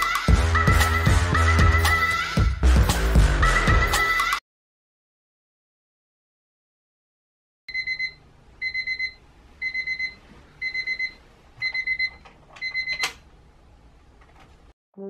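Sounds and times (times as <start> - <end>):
alarm clock beeping: 7.7 - 13.1.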